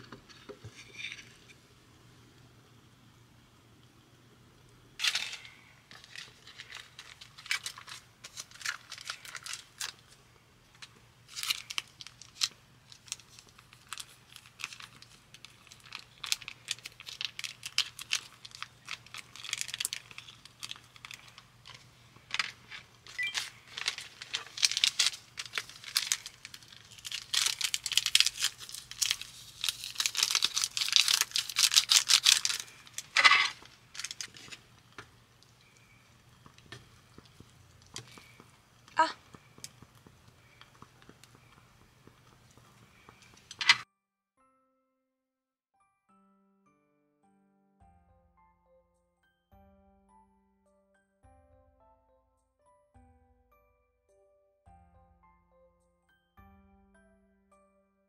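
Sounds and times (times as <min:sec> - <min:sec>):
sachets being torn open: 0:05.0 - 0:10.2, 0:10.8 - 0:34.6, 0:36.5 - 0:38.4
plastic sachets crinkling: 0:05.0 - 0:43.8.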